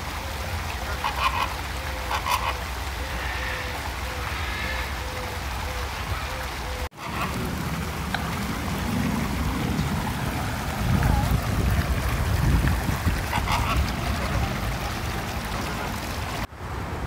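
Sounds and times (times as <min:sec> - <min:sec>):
flamingos honking: 0:00.7 - 0:16.5
low outdoor rumble: 0:06.9 - 0:17.0.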